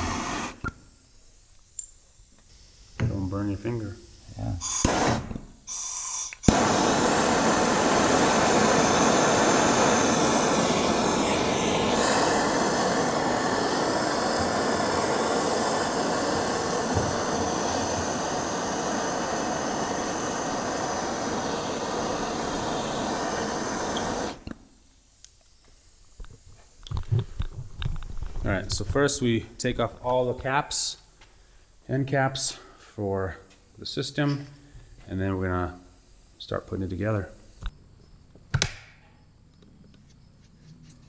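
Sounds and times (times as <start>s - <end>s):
gas torch flame hissing: 0.0s - 32.7s
gas torch ignition click: 4.6s - 5.4s, 6.0s - 25.6s.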